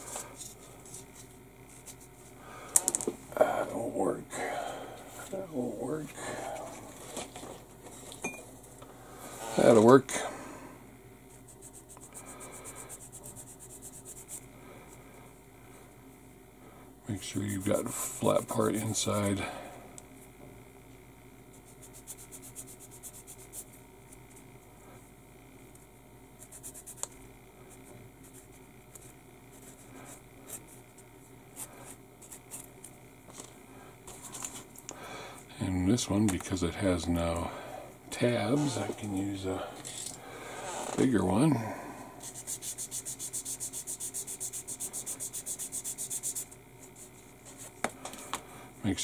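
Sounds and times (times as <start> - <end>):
sanding stick scratching plastic: 21.6 - 23.7, 42.2 - 47.2.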